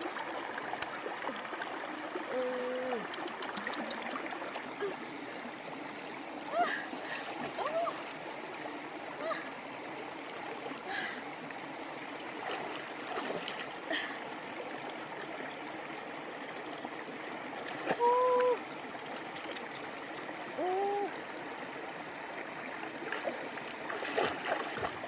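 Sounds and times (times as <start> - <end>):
stream flowing: 0.0 - 25.0
hands splashing in water: 23.1 - 25.0.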